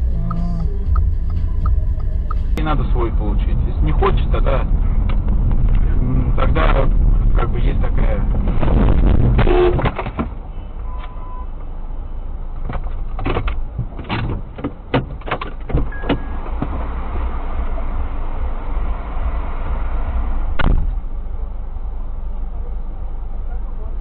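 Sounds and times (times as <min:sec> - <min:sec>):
car engine idling: 0:00.0 - 0:08.6
short beeps: 0:00.1 - 0:02.5.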